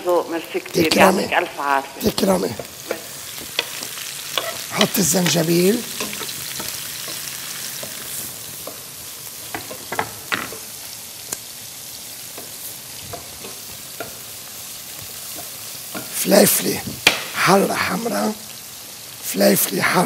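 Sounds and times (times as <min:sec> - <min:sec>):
oil sizzling: 0:00.0 - 0:20.0.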